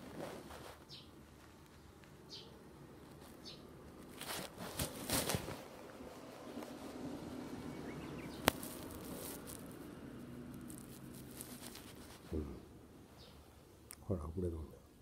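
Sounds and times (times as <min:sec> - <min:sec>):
clothing and camera rustling: 0:00.0 - 0:02.2, 0:03.0 - 0:07.3, 0:08.3 - 0:12.4
faint bird chirp: 0:00.8 - 0:02.6, 0:03.3 - 0:03.7, 0:07.5 - 0:08.5, 0:12.3 - 0:14.0.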